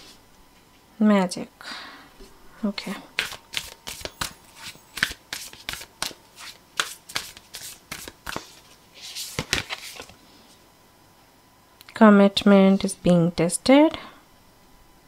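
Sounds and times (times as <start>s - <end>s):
cards snapping while shuffled: 3.2s - 8.6s, 9.2s - 10.1s
cards sliding rustle: 3.2s - 10.2s.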